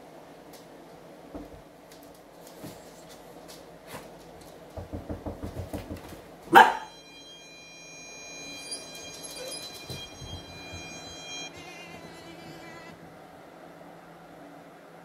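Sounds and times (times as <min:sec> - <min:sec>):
dog barking: 0:06.5 - 0:07.0
high electronic tone: 0:06.6 - 0:13.0.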